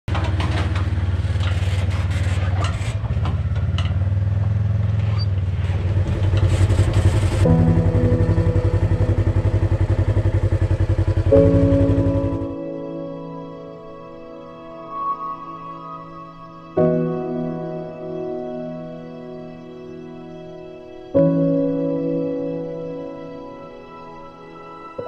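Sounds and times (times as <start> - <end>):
clattering: 0.1 - 4.1
vehicle engine running: 0.1 - 12.6
background music: 7.4 - 25.0.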